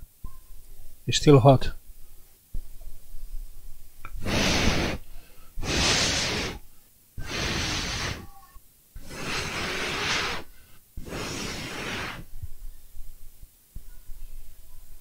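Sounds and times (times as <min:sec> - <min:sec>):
person blowing hard puffs: 0:04.1 - 0:06.6, 0:07.2 - 0:08.4, 0:09.0 - 0:12.4.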